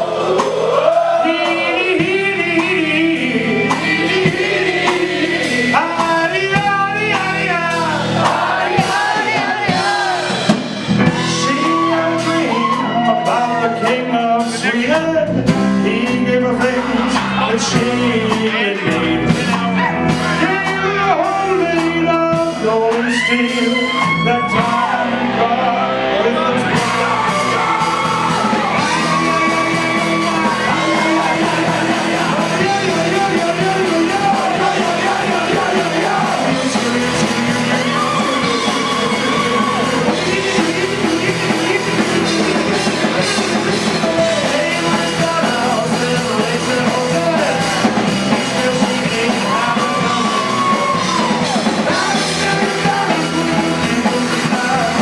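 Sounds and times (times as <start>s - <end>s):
punk rock band playing: 0.0s - 55.0s
person yelling vocals: 49.4s - 53.2s.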